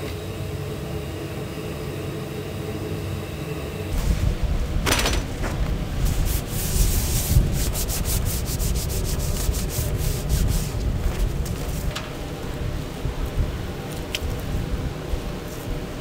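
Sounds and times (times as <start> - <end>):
low rumble: 3.9 - 7.8
quick rubbing strokes: 6.0 - 10.9.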